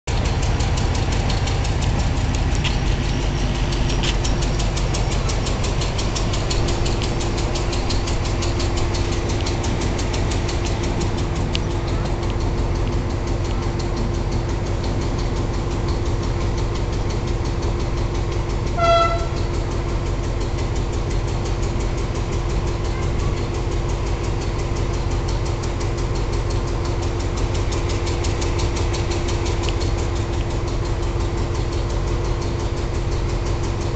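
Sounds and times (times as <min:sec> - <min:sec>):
train engine rumbling: 0:00.0 - 0:33.9
short high train horn toot: 0:18.8 - 0:19.5.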